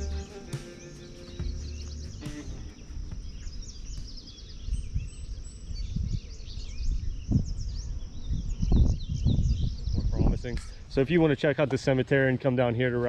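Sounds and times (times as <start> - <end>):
low thumps: 0.0 - 4.2
songbirds chirping and trilling: 0.0 - 13.0.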